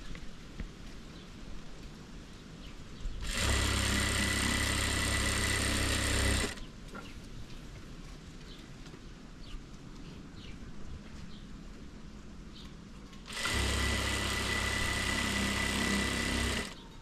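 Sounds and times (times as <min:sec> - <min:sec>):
sewing machine running: 0:03.2 - 0:06.6, 0:13.3 - 0:16.9.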